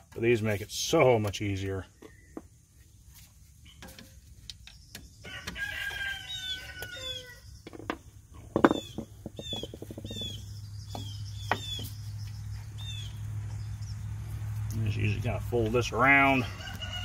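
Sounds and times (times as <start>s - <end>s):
birds calling: 0.9s - 17.0s.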